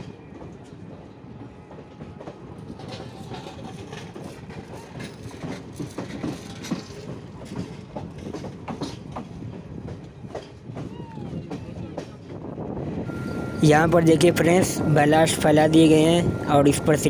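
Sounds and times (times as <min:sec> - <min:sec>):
train wheels clattering over rails: 0:00.0 - 0:13.4
train rolling rumble: 0:00.0 - 0:17.0.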